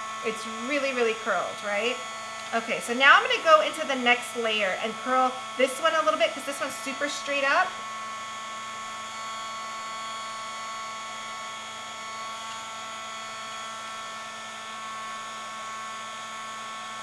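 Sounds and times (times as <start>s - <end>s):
heat gun fan whine: 0.0s - 17.0s.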